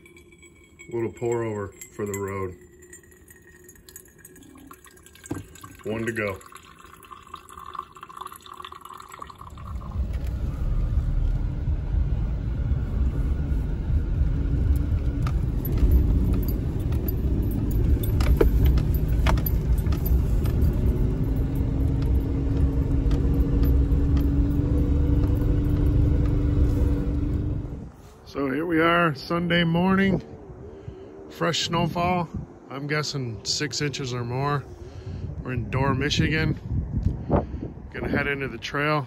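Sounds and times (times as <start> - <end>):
engine and tyres rumbling: 9.4 - 39.0
light rattles and clicks: 14.7 - 26.5.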